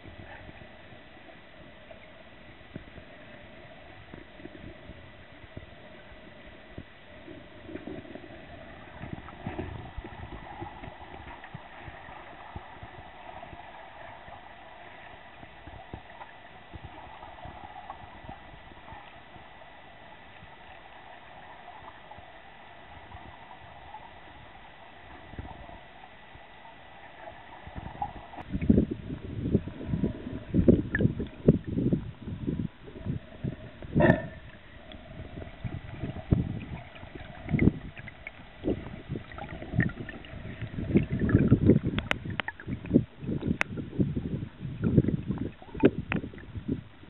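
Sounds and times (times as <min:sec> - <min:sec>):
water flowing underwater: 0:00.0 - 0:47.0
underwater knocks and clicks: 0:06.8 - 0:14.4, 0:29.9 - 0:47.0.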